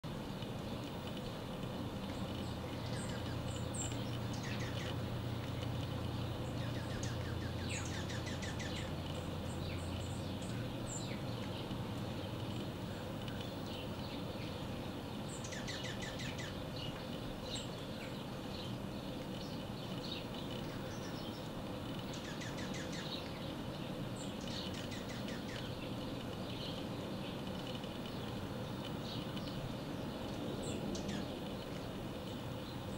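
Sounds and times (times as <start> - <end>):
songbirds chirping: 0.0 - 32.9
steady low rumble: 0.0 - 32.9
bird trills: 2.4 - 5.0, 6.4 - 11.2, 15.3 - 16.6, 22.1 - 23.4.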